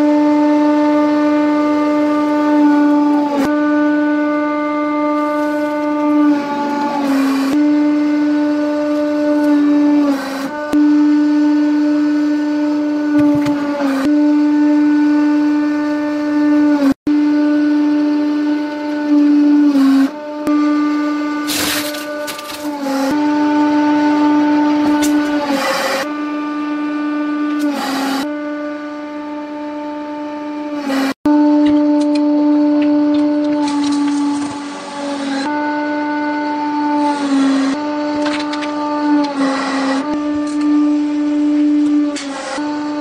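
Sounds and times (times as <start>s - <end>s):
hydraulic press droning whine: 0.0s - 43.0s
crackle of crushing: 21.4s - 22.8s.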